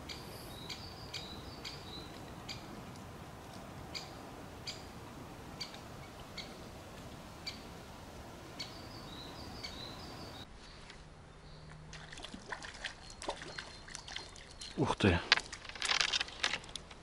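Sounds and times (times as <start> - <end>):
small bird calling: 0.0 - 2.7, 3.9 - 6.7, 8.6 - 10.8
leaves rustling in wind: 0.0 - 17.0.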